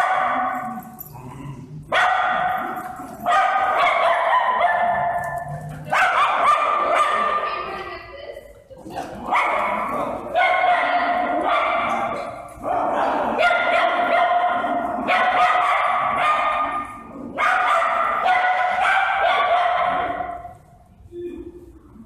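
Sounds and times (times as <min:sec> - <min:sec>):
dogs barking and yapping: 0:00.0 - 0:07.6, 0:09.0 - 0:20.7.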